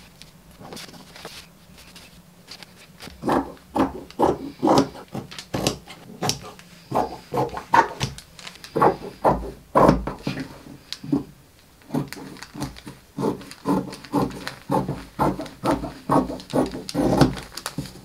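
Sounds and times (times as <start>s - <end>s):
scissors snipping fabric and paper: 11.9s - 18.0s.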